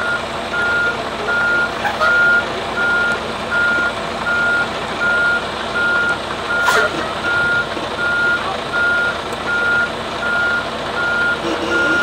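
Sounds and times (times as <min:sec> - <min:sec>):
truck backup alarm beeping: 0:00.0 - 0:12.0
truck engine running: 0:00.0 - 0:12.0.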